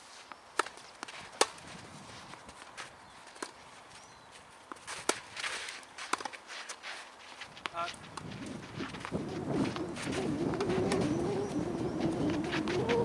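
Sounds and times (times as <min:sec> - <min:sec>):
scrape on clay court: 0:00.0 - 0:11.2
tennis ball bouncing on clay: 0:04.6 - 0:06.4, 0:07.6 - 0:11.2
tennis ball struck by rackets: 0:04.7 - 0:06.4.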